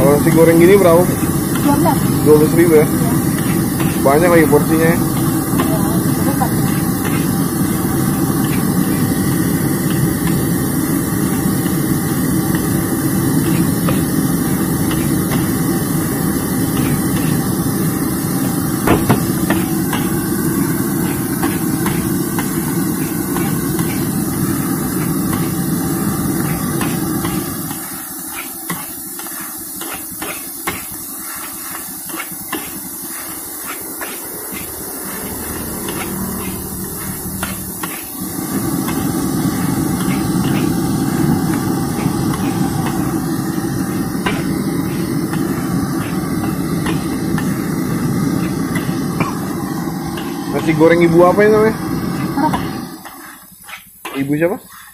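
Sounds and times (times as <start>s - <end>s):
metal spatula scraping wok: 27.7s - 43.1s, 53.0s - 54.9s.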